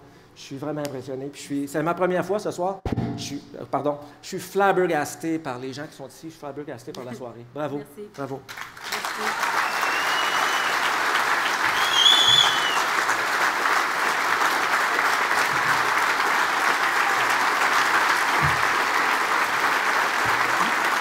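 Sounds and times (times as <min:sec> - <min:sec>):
audience applauding: 0:08.5 - 0:21.0.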